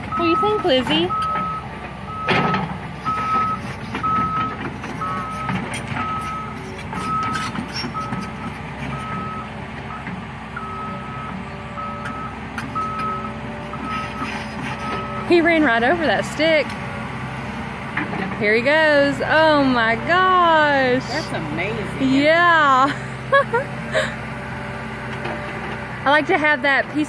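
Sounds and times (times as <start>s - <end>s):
excavator travel alarm beeping: 0.0s - 16.7s
diesel engine running: 0.0s - 27.0s.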